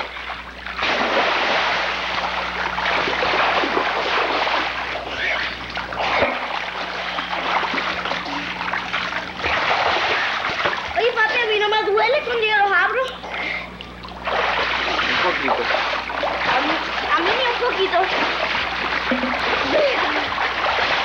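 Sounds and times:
pool water splashing: 0:00.0 - 0:21.0.

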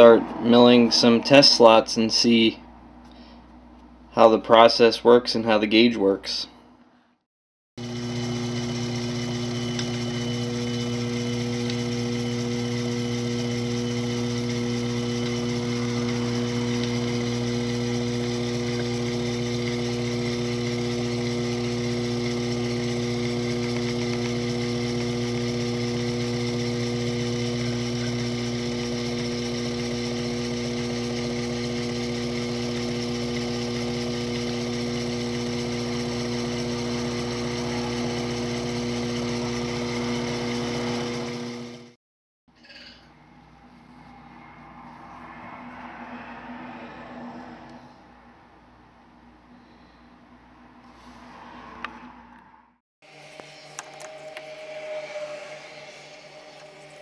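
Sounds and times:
mill spindle motor humming: 0:07.8 - 0:42.0, 0:53.0 - 0:57.0.

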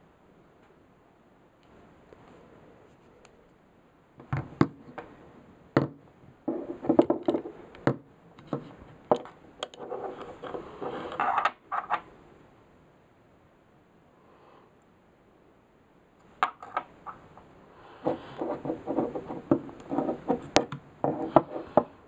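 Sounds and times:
scraping on wooden table: 0:06.5 - 0:07.6, 0:08.5 - 0:12.0, 0:18.0 - 0:22.0.

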